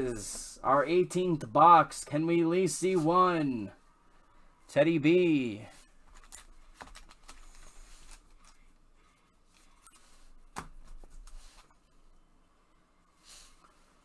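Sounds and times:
trading cards rustling and clicking: 6.0s - 8.8s.

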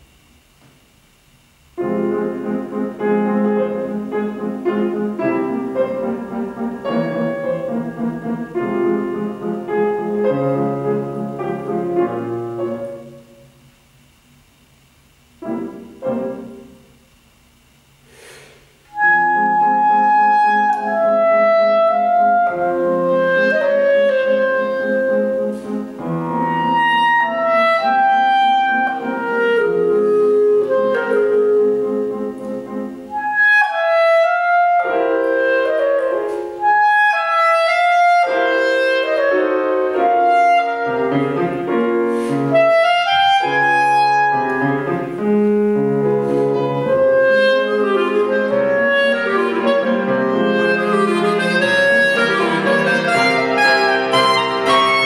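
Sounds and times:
grand piano chords: 0.0s - 55.0s
clarinet melody: 1.8s - 13.6s, 15.4s - 17.2s, 18.8s - 55.0s.

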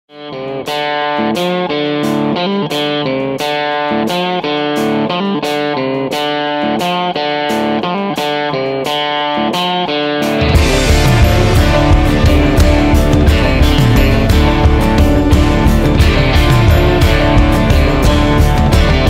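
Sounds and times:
electric guitar riff: 0.1s - 19.0s
full band playing: 10.4s - 19.0s.

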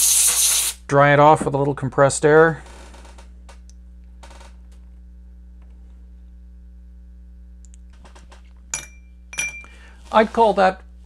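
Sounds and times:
steady low hum: 0.8s - 11.0s
circuit board clinking in glass bowl: 8.7s - 9.8s.

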